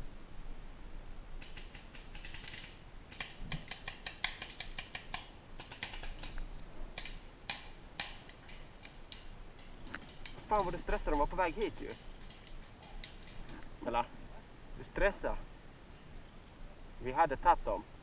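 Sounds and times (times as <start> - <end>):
sharp irregular clicks and snaps: 1.4 - 13.7.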